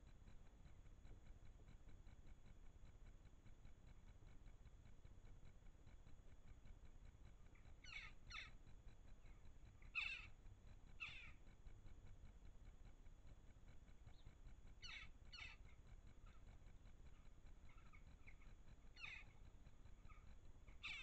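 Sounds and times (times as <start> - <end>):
crows giving harsh calls: 10.0 - 10.3.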